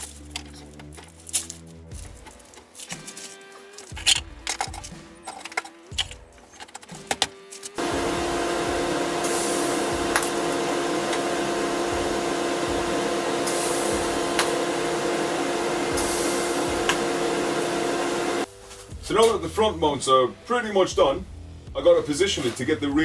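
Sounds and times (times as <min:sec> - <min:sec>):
metal parts clicking: 0:00.0 - 0:07.8
welder humming: 0:07.2 - 0:18.5
welding arc sizzling: 0:07.4 - 0:18.5.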